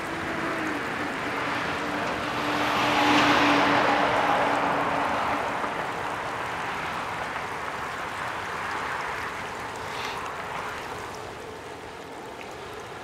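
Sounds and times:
vehicle driving away: 0:00.0 - 0:06.9.

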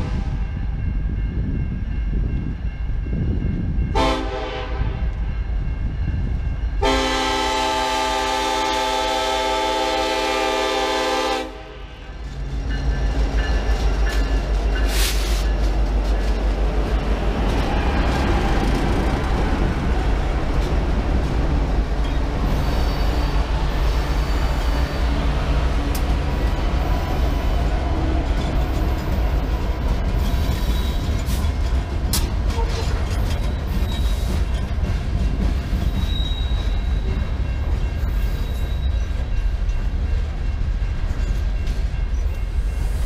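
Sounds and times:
locomotive engines rumbling: 0:00.0 - 0:43.0
locomotive air horn chord: 0:04.0 - 0:05.0, 0:06.8 - 0:12.0.

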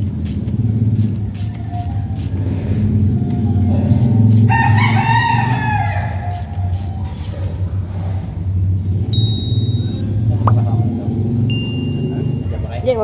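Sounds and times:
low mechanical drone: 0:00.0 - 0:13.0
rooster crowing: 0:04.4 - 0:06.6.

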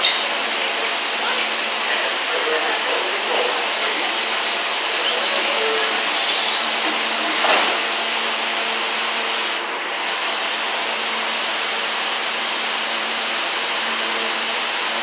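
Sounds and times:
train equipment whirring hiss: 0:00.0 - 0:13.8.

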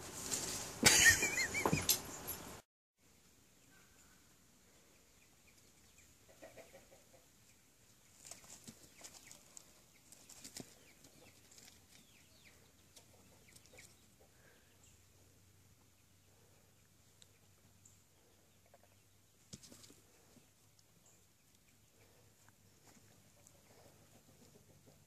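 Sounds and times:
faint bird chirps: 0:01.3 - 0:19.4.

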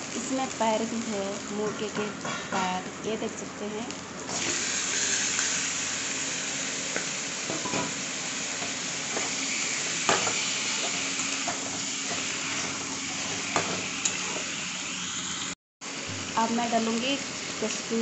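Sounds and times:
meat sizzling in hot oil: 0:00.0 - 0:18.0
metal spatula scraping pan: 0:10.1 - 0:14.5.

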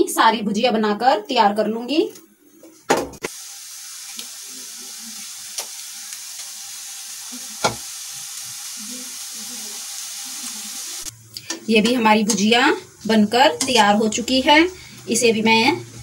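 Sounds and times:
dough frying in hot oil: 0:03.2 - 0:11.1.

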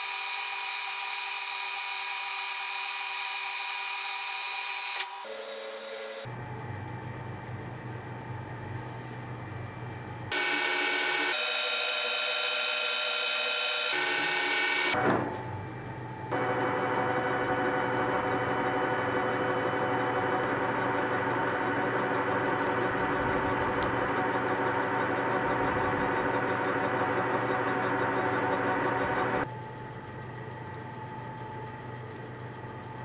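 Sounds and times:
metal lathe cutting whine: 0:00.0 - 0:06.3, 0:10.3 - 0:15.0, 0:16.4 - 0:29.5
lathe humming: 0:10.3 - 0:15.0, 0:16.3 - 0:29.5.

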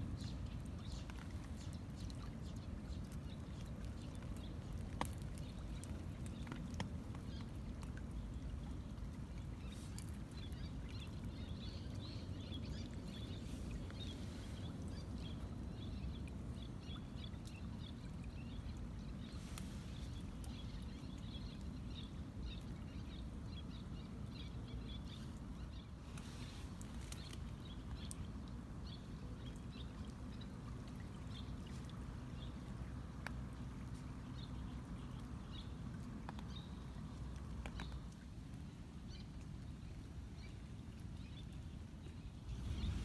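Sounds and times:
small birds chirping: 0:00.0 - 0:43.0
faint ticks: 0:31.8 - 0:38.2.

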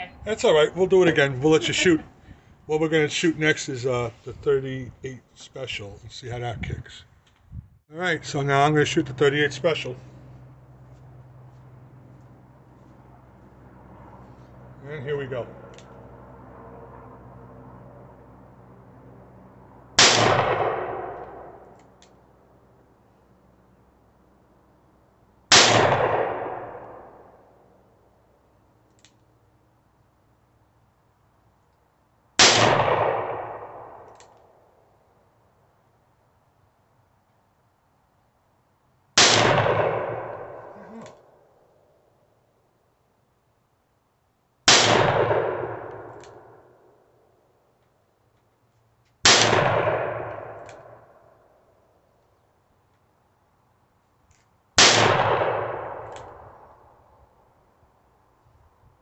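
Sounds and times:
revolver shots with echo: 0:20.0 - 0:21.6, 0:25.5 - 0:26.9, 0:39.2 - 0:41.2, 0:44.7 - 0:46.6.

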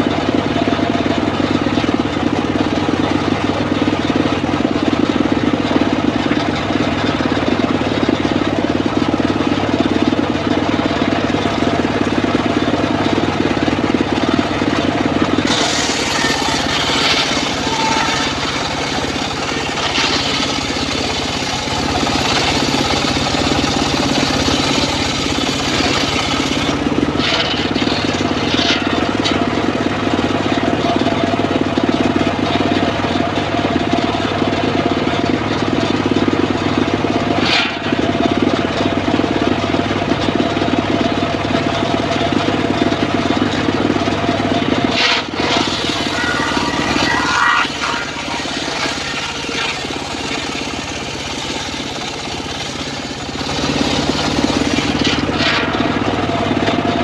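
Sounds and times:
engine running steadily: 0:00.0 - 0:57.0
saw blade cutting log: 0:14.1 - 0:29.4, 0:44.8 - 0:56.1.

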